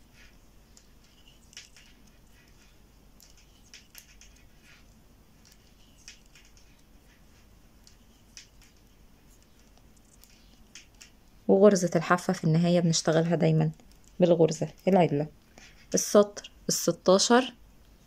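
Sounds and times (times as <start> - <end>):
knitting needles clicking: 0.2 - 7.0, 7.8 - 11.3, 13.7 - 14.2.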